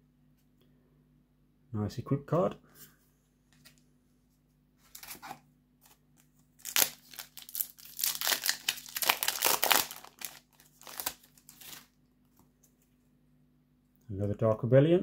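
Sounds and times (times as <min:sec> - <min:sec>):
foil wrapper crinkling: 0:06.6 - 0:12.0
foil wrapper tearing: 0:06.6 - 0:12.0.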